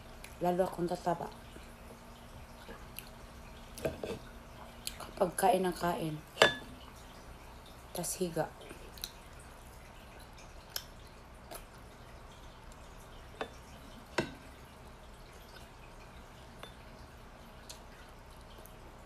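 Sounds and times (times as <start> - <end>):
faint room hum: 0.0 - 19.0
chewing and lip-smacking: 2.6 - 3.2, 4.6 - 5.2, 8.7 - 11.9, 17.5 - 18.9.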